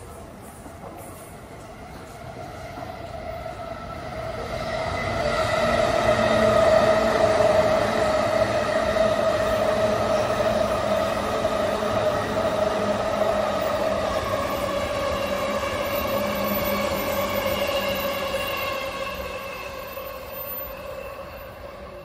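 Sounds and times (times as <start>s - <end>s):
train passing with whine: 0.0s - 22.0s.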